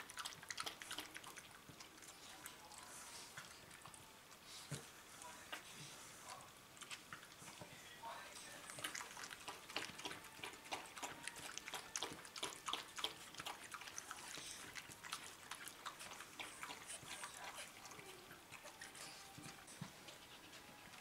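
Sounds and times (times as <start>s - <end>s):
dog lapping from a bowl: 0.0s - 2.7s, 8.6s - 21.0s.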